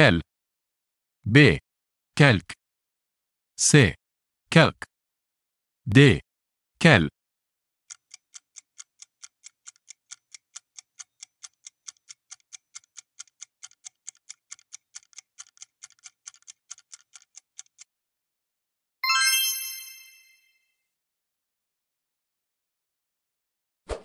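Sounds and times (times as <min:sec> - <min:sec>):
bright chime: 0:19.0 - 0:20.6.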